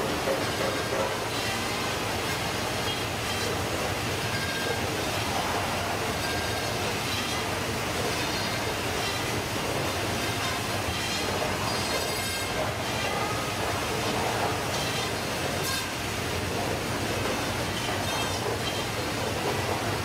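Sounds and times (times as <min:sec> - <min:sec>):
machine and conveyor running: 0:00.0 - 0:20.0.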